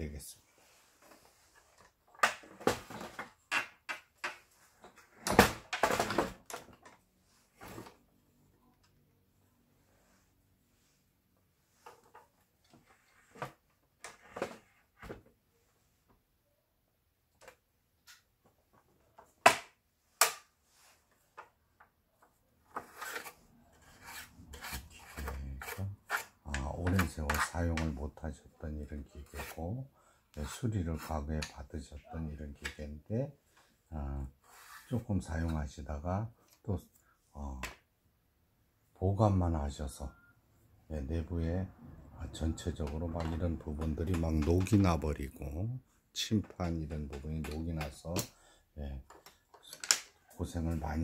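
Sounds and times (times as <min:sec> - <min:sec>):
rustling and scraping: 0:09.8 - 0:15.2, 0:22.6 - 0:27.6
plastic parts clicking: 0:49.0 - 0:50.2.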